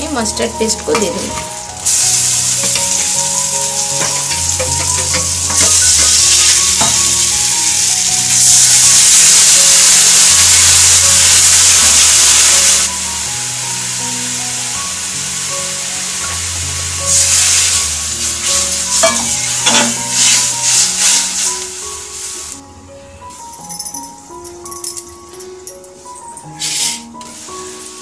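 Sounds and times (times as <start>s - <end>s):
paste sizzling in hot oil: 0.1s - 22.6s
water poured into hot pan: 1.8s - 13.0s, 16.2s - 22.5s
spatula scraping a pan: 18.4s - 21.5s.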